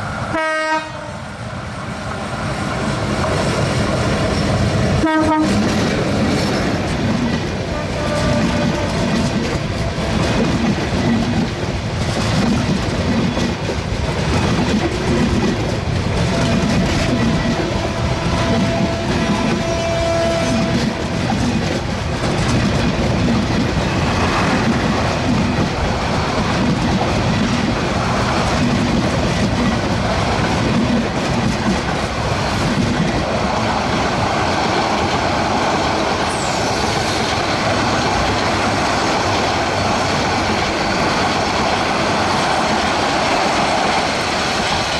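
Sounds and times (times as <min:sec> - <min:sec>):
train wheels on rails: 0:00.0 - 0:44.9.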